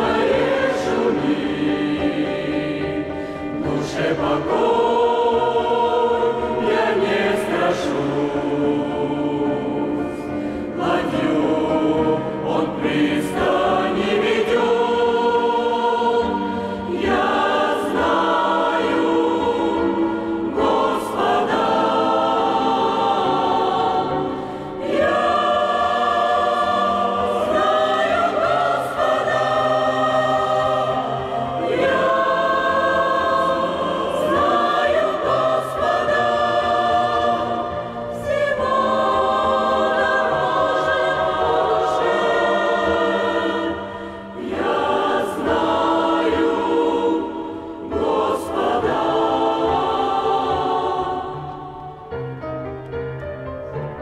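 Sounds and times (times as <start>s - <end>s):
church choir singing a hymn: 0.0s - 53.9s.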